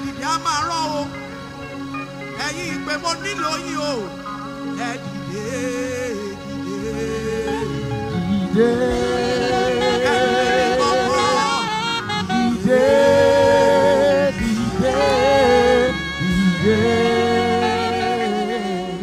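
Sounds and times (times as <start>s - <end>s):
woman singing gospel through speakers: 5.3s - 19.0s.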